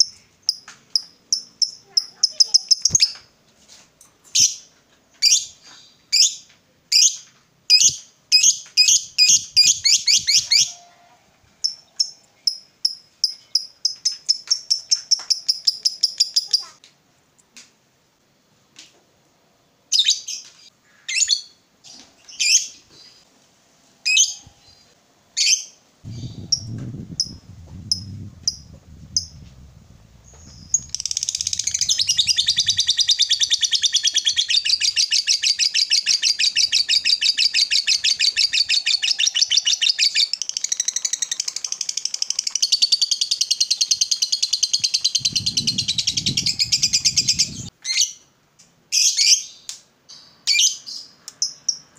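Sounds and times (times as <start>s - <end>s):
bird chattering trill: 0.5s - 3.2s, 26.1s - 29.4s, 30.2s - 40.5s, 42.7s - 47.7s
bird chirping: 7.0s - 11.0s, 24.1s - 48.2s.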